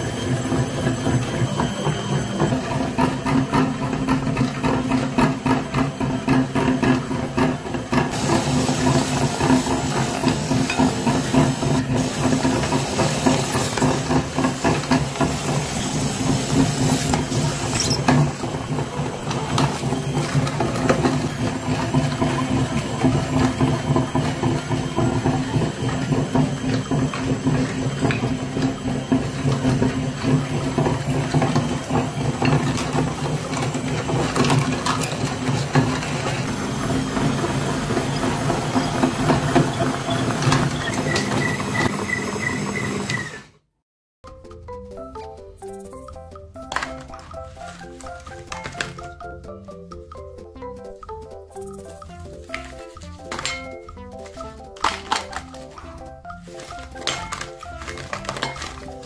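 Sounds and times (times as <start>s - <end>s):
meat grinder motor humming: 0.0s - 43.6s, 51.8s - 59.0s.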